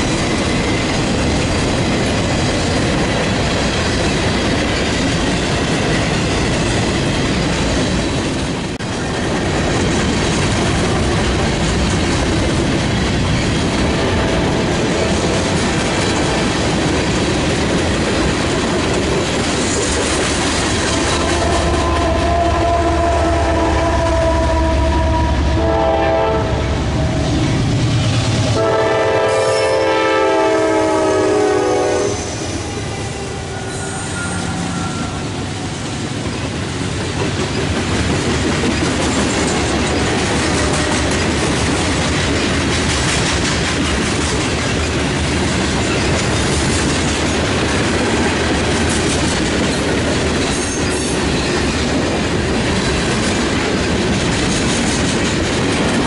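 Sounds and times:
train wheels rumbling and clattering: 0.0 - 56.0
locomotive horn: 21.0 - 27.7, 28.5 - 35.5.

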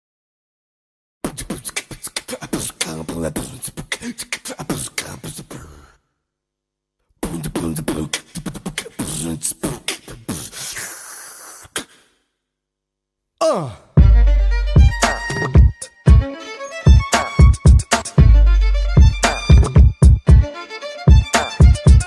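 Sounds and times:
beatboxing mouth clicks and pops: 1.2 - 5.4, 7.3 - 10.8, 11.4 - 12.1.

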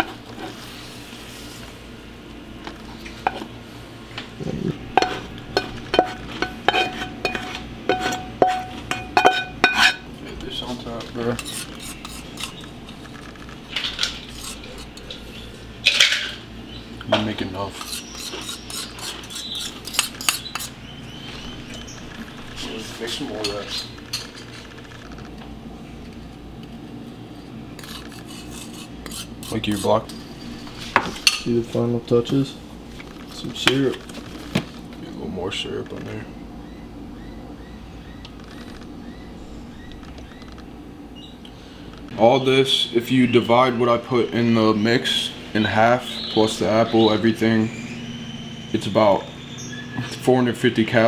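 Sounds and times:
steady low hum: 0.0 - 51.0
metal spoon scraping a skillet: 5.0 - 10.0, 11.3 - 15.3, 17.7 - 20.8, 27.8 - 30.2.

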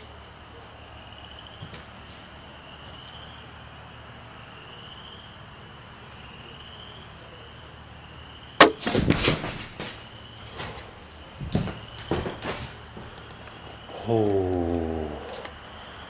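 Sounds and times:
knocks and rustles: 8.6 - 13.2.

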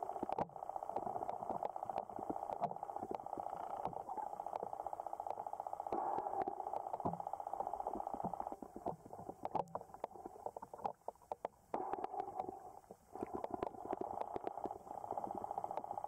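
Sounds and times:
sharp clicks and ticks: 0.0 - 12.6, 13.2 - 16.0.

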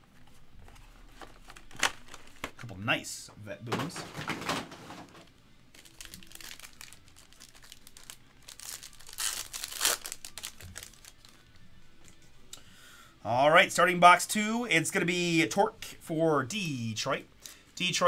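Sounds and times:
foil wrapper crinkling and tearing: 5.7 - 11.4.

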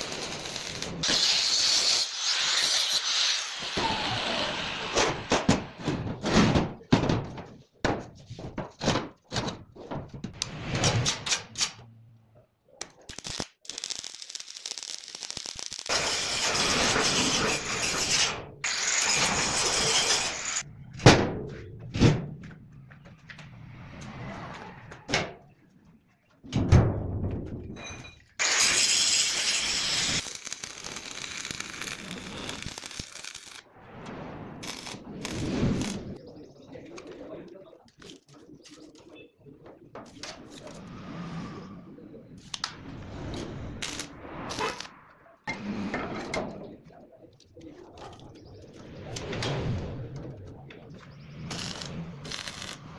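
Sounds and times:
arc welding crackle: 0.0 - 4.7, 12.8 - 20.6, 28.4 - 33.7, 34.6 - 36.2, 43.7 - 44.9, 51.4 - 52.9.

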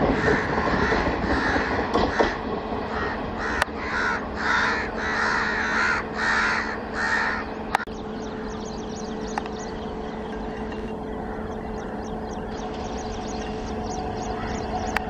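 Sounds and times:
crows cawing: 0.1 - 8.6, 10.4 - 12.6, 14.2 - 14.7
steady low hum: 3.2 - 15.0.

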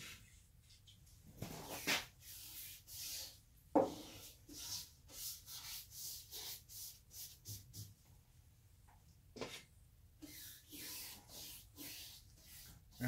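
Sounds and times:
paintbrush strokes on wood: 1.6 - 8.0, 10.2 - 13.0.

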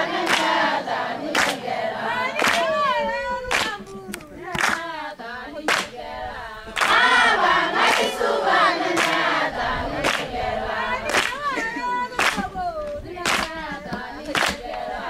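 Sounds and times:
women singing together: 0.0 - 15.0
sharp hand claps: 0.2 - 0.7, 1.3 - 5.0, 5.7 - 6.0, 6.8 - 7.1, 7.8 - 8.2, 8.9 - 9.3, 10.0 - 10.3, 11.0 - 14.8.

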